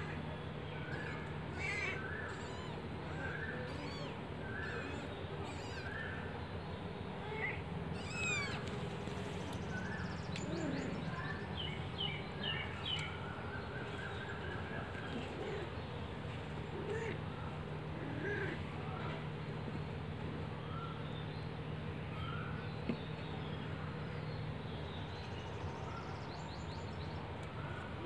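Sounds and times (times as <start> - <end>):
kittens mewing: 0.8 - 6.3, 7.2 - 8.7, 16.6 - 18.7.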